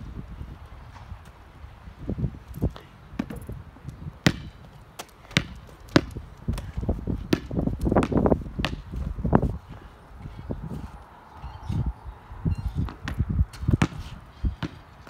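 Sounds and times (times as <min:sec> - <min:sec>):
basketball bouncing on asphalt: 0:03.1 - 0:09.8, 0:12.8 - 0:15.0.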